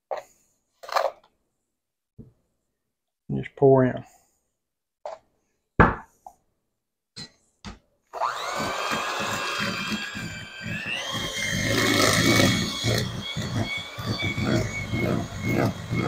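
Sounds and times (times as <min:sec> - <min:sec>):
electric hand mixer whining: 0:08.1 - 0:16.0.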